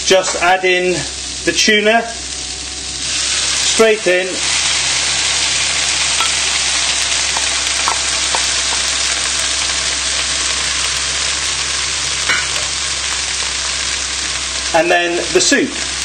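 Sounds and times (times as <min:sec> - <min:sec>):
vegetables sizzling in a frying pan: 0:00.0 - 0:16.0.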